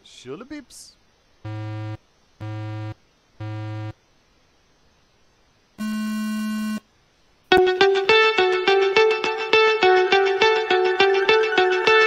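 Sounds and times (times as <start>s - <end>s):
short buzzy electronic beeps: 1.5s - 4.0s, 5.8s - 6.8s
long high-pitched beep: 5.8s - 6.8s.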